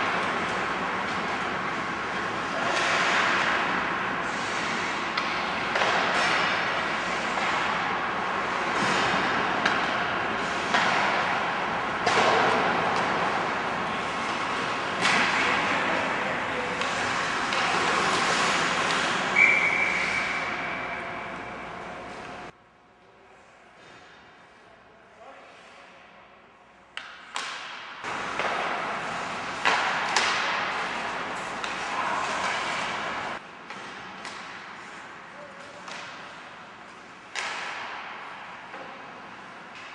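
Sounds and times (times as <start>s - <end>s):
skates scraping ice: 0.0s - 21.0s, 27.4s - 39.9s
hockey sticks and puck clacking: 0.0s - 22.5s, 26.9s - 39.9s
referee whistle: 19.4s - 20.6s.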